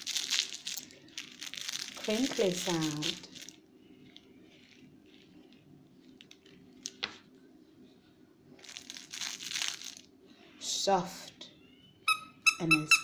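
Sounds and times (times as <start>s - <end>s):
crinkle toy rustling: 0.0s - 7.0s, 8.6s - 10.2s.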